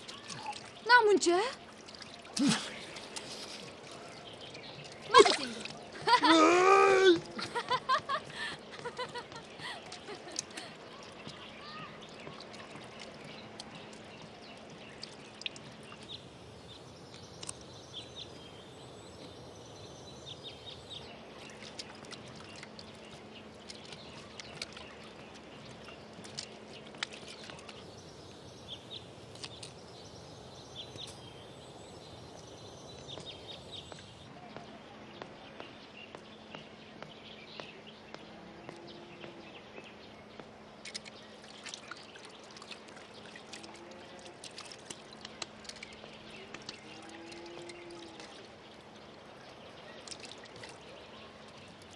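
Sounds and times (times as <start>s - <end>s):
small drips and taps: 0.0s - 6.2s, 7.2s - 16.2s, 17.1s - 17.6s, 21.4s - 27.8s, 40.3s - 51.9s
water trickling and splashing: 0.0s - 51.9s.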